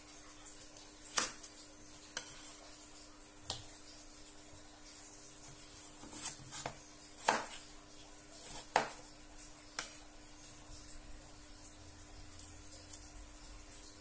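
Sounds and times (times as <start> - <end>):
knife cutting potato on wooden board: 1.1 - 2.7, 5.4 - 10.1.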